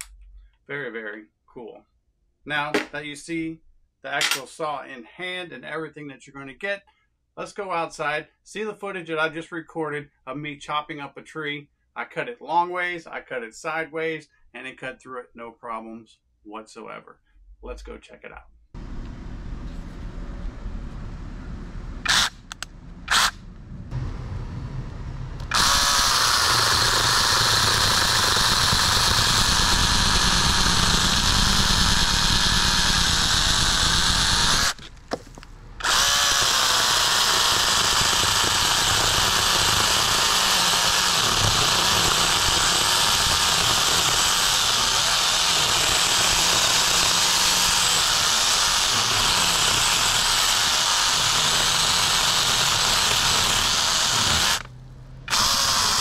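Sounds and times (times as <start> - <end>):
mini chainsaw whining: 22.1 - 22.5, 23.1 - 23.4, 25.4 - 54.7, 55.3 - 56.0
chain cutting into wood: 25.5 - 54.7.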